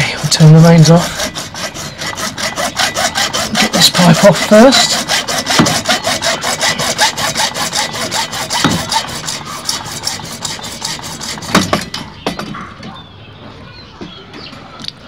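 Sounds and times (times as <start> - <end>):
hacksaw cutting plastic pipe: 0.0 - 12.0.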